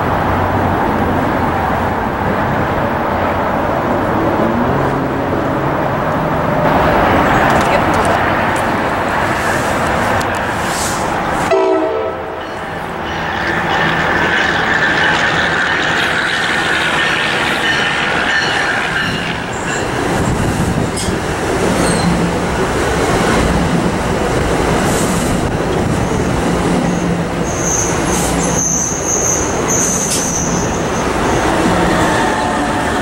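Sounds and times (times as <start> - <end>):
train wheels rumbling: 0.0 - 33.0
high-pitched wheel squeal: 26.9 - 33.0.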